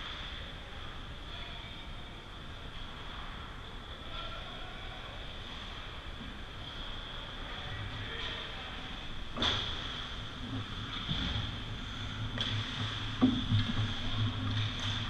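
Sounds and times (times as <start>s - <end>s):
steady high hum: 0.0s - 15.0s
puck and stick clacks: 12.3s - 15.0s.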